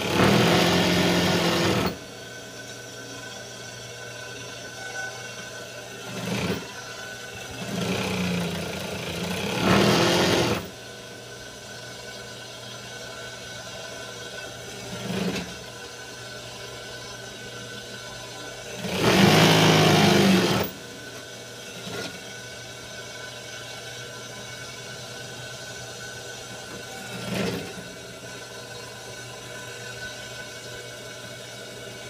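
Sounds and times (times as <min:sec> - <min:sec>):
sewing machine stitching: 0:00.0 - 0:02.0, 0:06.0 - 0:06.7, 0:07.5 - 0:10.7, 0:14.9 - 0:15.5, 0:18.8 - 0:20.8, 0:27.0 - 0:27.8
sewing machine motor humming: 0:00.0 - 0:02.1, 0:06.0 - 0:06.8, 0:07.4 - 0:10.8, 0:18.7 - 0:20.8.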